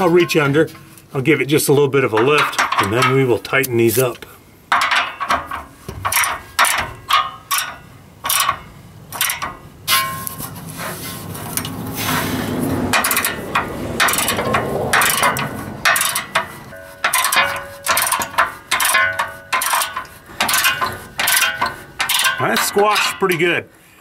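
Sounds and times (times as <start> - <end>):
metal clinks: 12.9 - 23.4.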